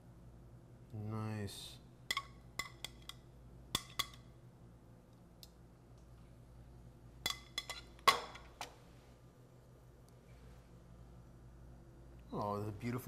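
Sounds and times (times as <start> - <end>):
metal tongs clinking on plates: 2.1 - 4.3, 7.2 - 8.4.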